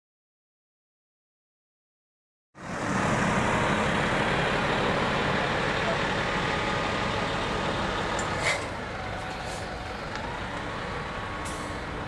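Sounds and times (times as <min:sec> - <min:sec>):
bus diesel engine running: 0:02.6 - 0:12.0
brief sharp hiss: 0:08.3 - 0:08.7.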